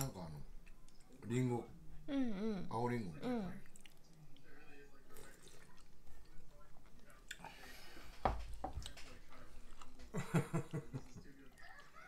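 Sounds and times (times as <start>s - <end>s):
chewing: 3.6s - 4.5s, 5.1s - 7.5s.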